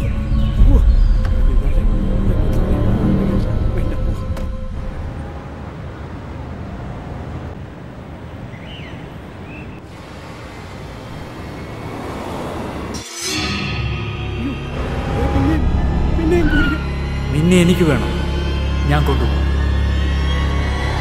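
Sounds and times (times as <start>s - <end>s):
car engine and tyre noise: 2.5s - 13.0s.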